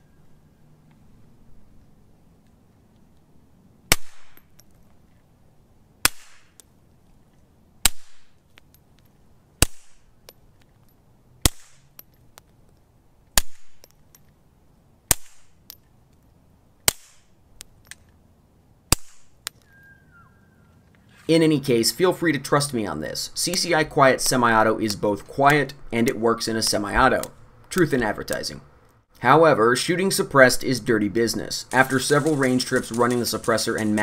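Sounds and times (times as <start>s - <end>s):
suppressed pistol shots: 3.9s - 4.4s.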